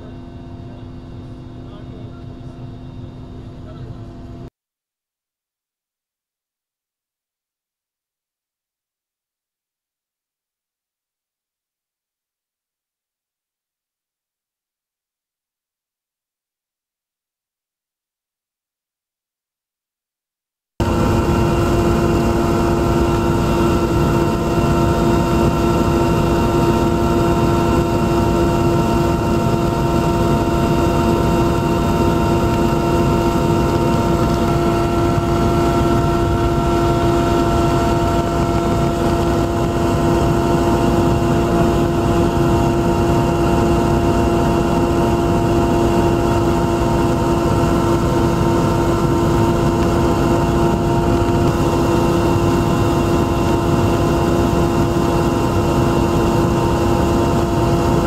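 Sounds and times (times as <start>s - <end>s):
aircraft engine drone: 0.0s - 4.5s, 20.8s - 58.0s.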